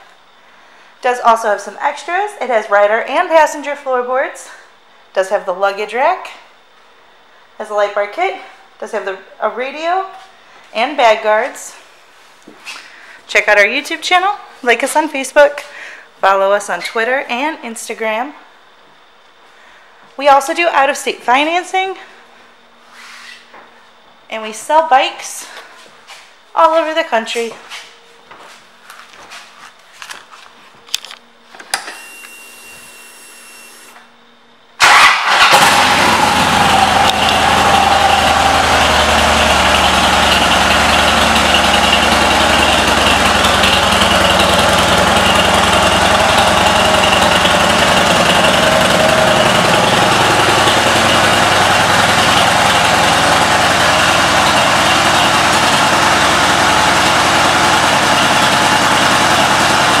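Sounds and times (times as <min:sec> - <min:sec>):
motorcycle engine starting and idling: 0:34.8 - 1:00.0.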